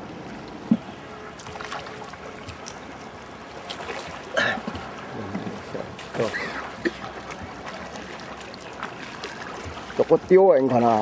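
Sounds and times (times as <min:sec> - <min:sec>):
water washing around boat: 0:00.0 - 0:11.0
knock on boat: 0:00.6 - 0:00.9.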